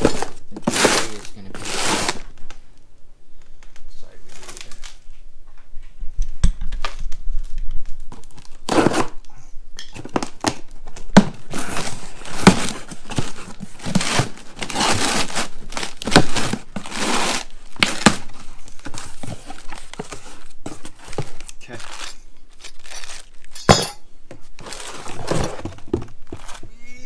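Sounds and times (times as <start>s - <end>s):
cardboard boxes torn open: 0.0s - 2.4s, 8.1s - 9.2s, 10.0s - 23.5s, 24.6s - 26.6s.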